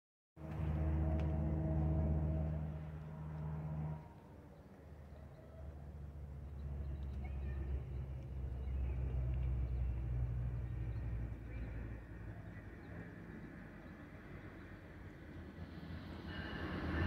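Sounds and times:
diesel locomotive engine rumble: 0.4 - 17.0.

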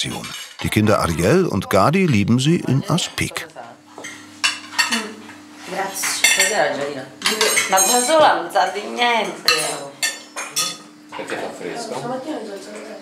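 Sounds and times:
cutlery clinking on plates: 6.0 - 6.6, 7.2 - 11.5.

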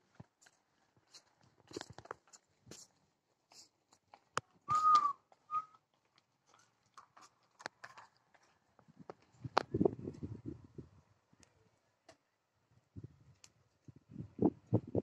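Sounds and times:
short clear whistle: 4.7 - 5.7.

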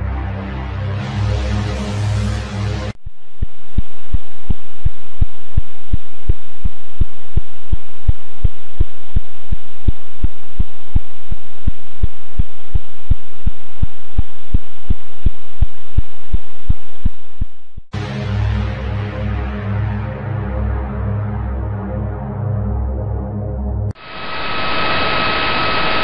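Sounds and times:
regular radio pulses: 24.0 - 26.0
static hiss: 24.0 - 26.0.

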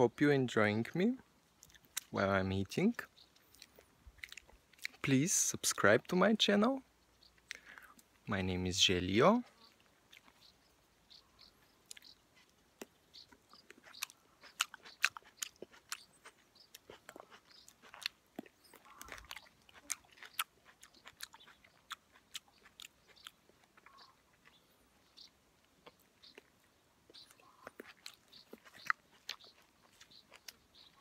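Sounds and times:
wet chewing mouth clicks: 1.6 - 2.2, 3.3 - 5.1, 7.4 - 8.1, 9.6 - 10.5, 11.8 - 24.6, 25.6 - 31.0.

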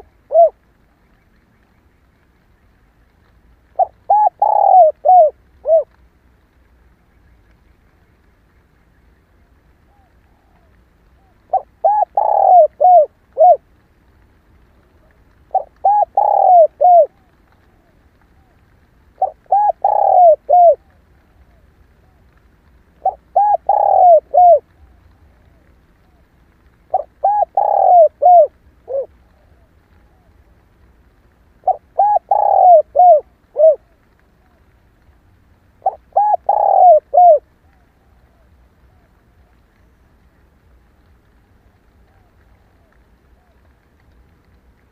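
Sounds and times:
dove cooing: 0.0 - 0.6, 3.7 - 6.0, 9.4 - 13.7, 15.0 - 18.6, 19.2 - 22.3, 23.0 - 26.3, 26.9 - 30.6, 31.6 - 34.7, 35.8 - 39.6.

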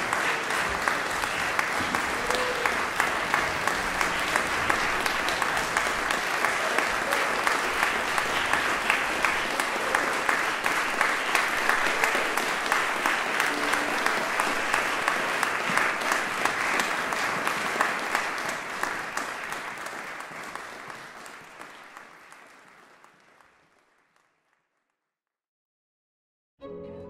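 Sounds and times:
audience applause: 0.0 - 24.7
string music: 13.4 - 14.9, 26.6 - 27.0.

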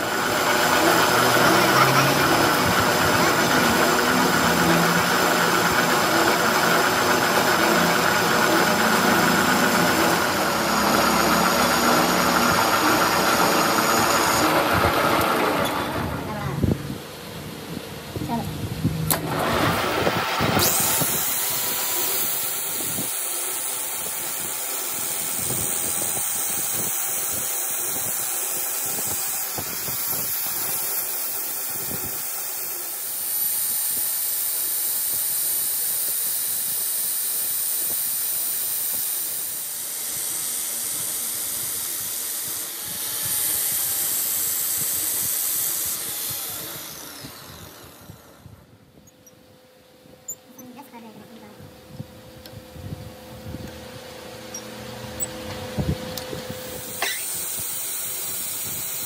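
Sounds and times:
angle grinder grinding steel: 0.0 - 16.1, 19.1 - 48.2, 56.2 - 59.0
lathe running: 0.0 - 16.3, 19.0 - 48.4, 53.7 - 59.0.

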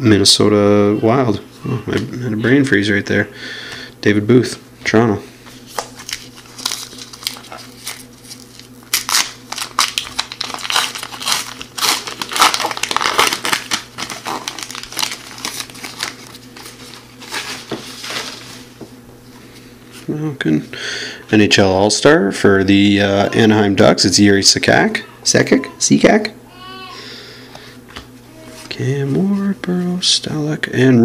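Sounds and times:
plastic wrapper tearing and crinkling: 5.7 - 18.4.

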